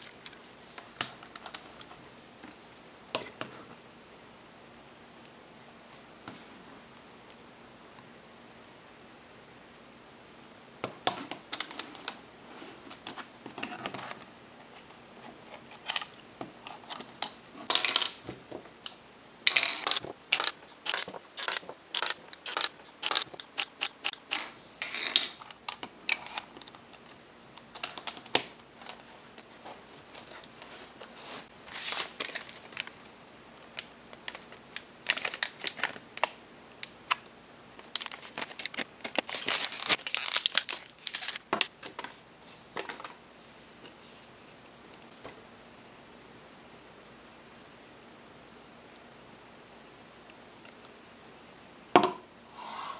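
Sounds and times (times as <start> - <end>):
plastic puzzle pieces clicking: 19.5 - 24.4
packaging crinkling: 35.0 - 36.0, 37.8 - 41.5.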